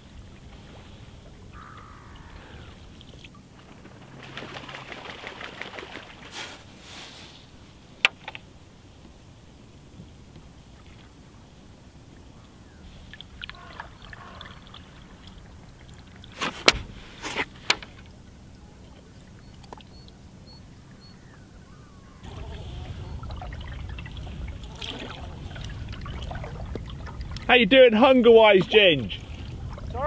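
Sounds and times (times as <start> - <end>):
paddle strokes in water: 0.0 - 8.4, 9.9 - 18.2, 22.2 - 30.0
water trickling off paddle: 10.3 - 20.2, 22.2 - 30.0
steady low rumble: 20.7 - 30.0.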